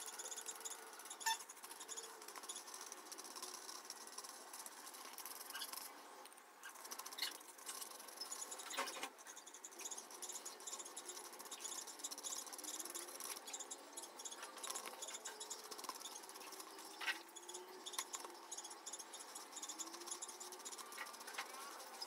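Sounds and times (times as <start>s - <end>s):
crickets chirping: 6.7s - 22.0s.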